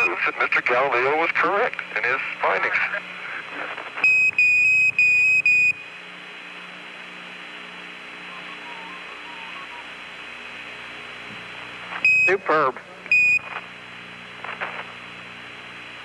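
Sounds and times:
radio static hiss: 0.0s - 4.1s, 5.8s - 16.0s
high-pitched radio beep: 12.0s - 13.5s.

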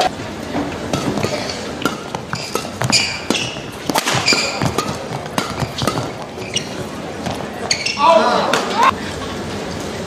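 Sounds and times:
arena crowd noise: 0.0s - 10.0s
shoes squeaking on court: 0.6s - 8.9s
racket hitting shuttlecock: 0.7s - 7.9s.

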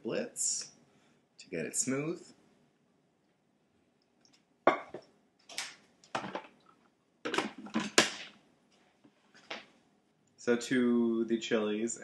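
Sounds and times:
kitchenware knocking and clinking: 4.7s - 5.1s, 6.2s - 6.5s, 7.3s - 8.3s.

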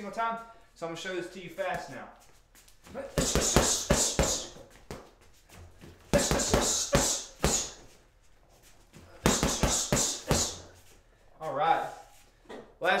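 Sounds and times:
gloves punching heavy bag: 2.9s - 5.1s, 5.9s - 7.9s, 9.0s - 10.8s.

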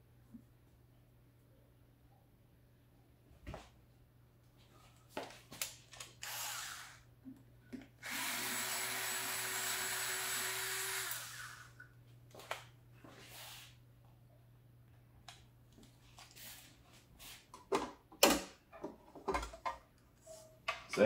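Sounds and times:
electric screwdriver running: 6.2s - 7.0s, 8.0s - 11.8s.

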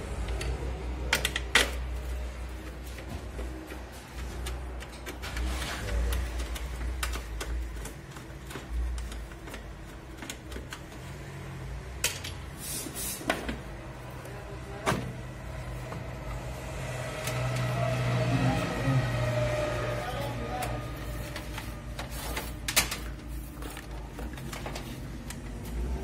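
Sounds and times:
clicks and knocks of handling parts: 0.2s - 11.3s, 11.9s - 12.6s, 20.6s - 26.0s.

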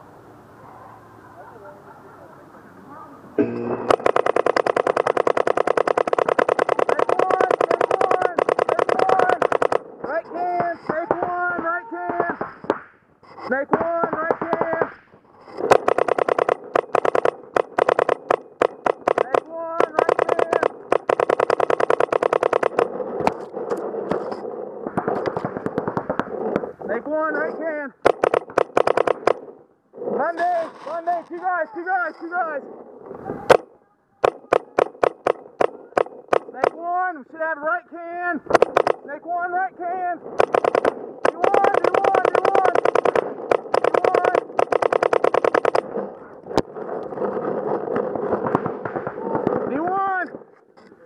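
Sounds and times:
steady noisy background: 0.0s - 51.0s
paintball marker shots: 3.4s - 12.9s, 13.5s - 26.7s, 28.0s - 30.2s, 33.4s - 36.8s, 38.5s - 39.1s, 40.3s - 49.8s
sharp knock: 34.2s - 36.8s.

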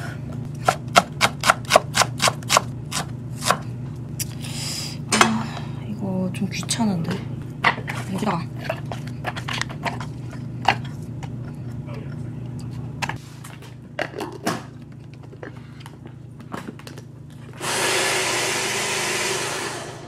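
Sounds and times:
electric food chopper running: 17.6s - 20.0s.

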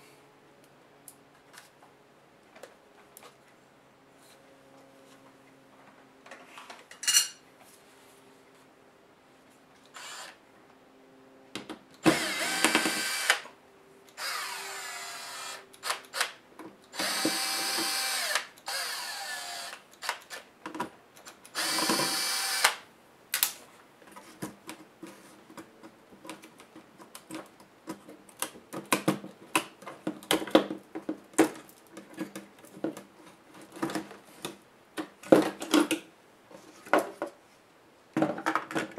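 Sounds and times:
drill motor whining: 9.9s - 10.4s, 12.0s - 13.4s, 14.2s - 16.2s, 16.9s - 20.1s, 21.6s - 22.8s.

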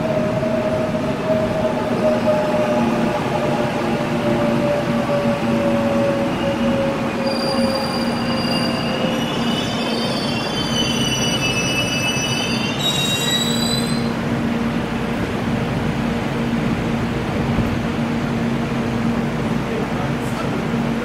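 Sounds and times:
train rolling rumble: 0.0s - 21.0s
wheel and brake squeals: 7.2s - 14.1s.

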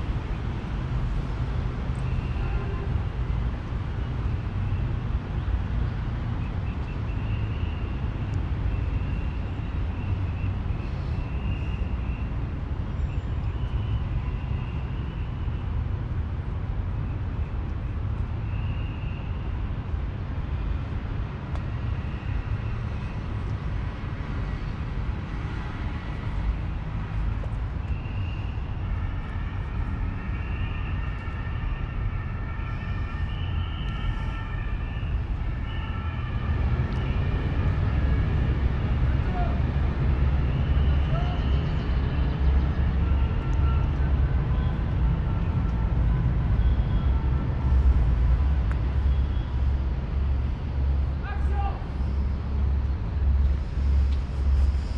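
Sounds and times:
steady low rumble: 0.0s - 2.0s, 41.6s - 54.9s
city traffic rumble: 0.0s - 54.9s.

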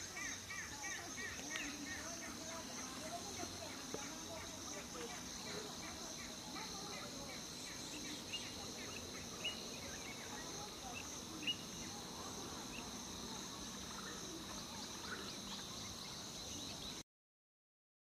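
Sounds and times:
high-pitched insect chorus: 0.0s - 17.0s
small birds chirping: 0.0s - 17.0s.

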